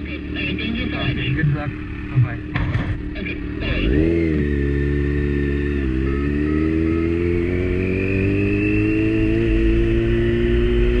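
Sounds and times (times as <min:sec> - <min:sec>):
motorcycle engine accelerating: 0:00.0 - 0:11.0.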